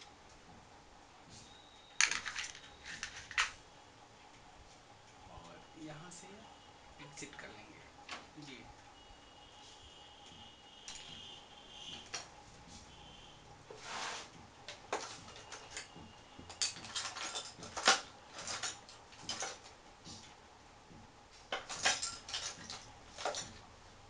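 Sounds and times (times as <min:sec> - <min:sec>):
machine parts clicking and rattling: 0:02.0 - 0:03.6, 0:14.7 - 0:19.8, 0:21.5 - 0:23.7.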